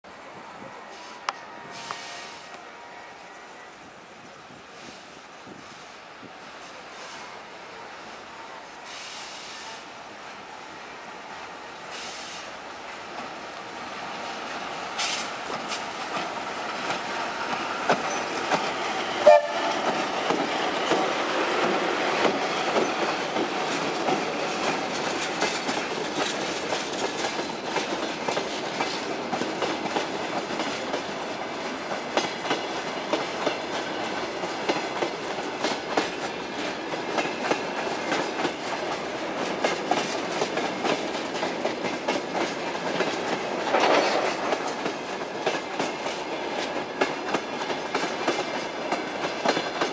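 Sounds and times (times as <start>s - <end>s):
freight train rolling past: 0.1s - 49.9s
wheels clacking over rail joints: 12.9s - 49.9s.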